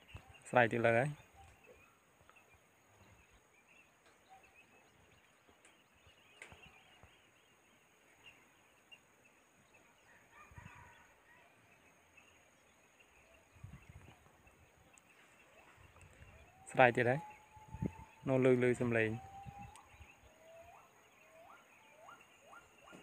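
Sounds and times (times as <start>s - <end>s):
distant monkey calls: 0.0s - 5.1s, 9.7s - 23.0s.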